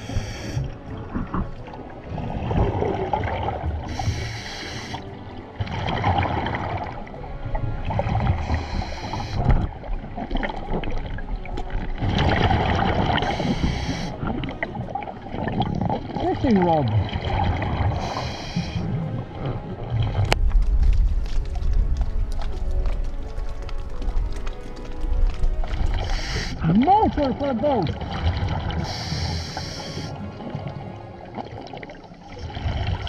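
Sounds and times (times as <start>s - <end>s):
regulator hissing inhalation: 0.0s - 0.7s, 3.9s - 5.0s, 8.4s - 9.5s, 13.2s - 14.2s, 18.0s - 18.8s, 26.0s - 26.6s, 28.8s - 30.2s
rush of exhaled bubbles: 2.1s - 5.0s, 12.0s - 14.4s, 31.3s - 33.0s.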